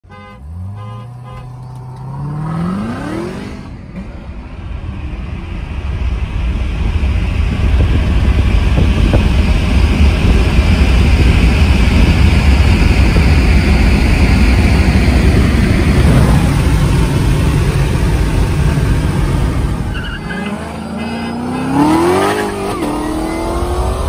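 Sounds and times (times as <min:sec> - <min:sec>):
road and wind noise: 0:00.0 - 0:24.0.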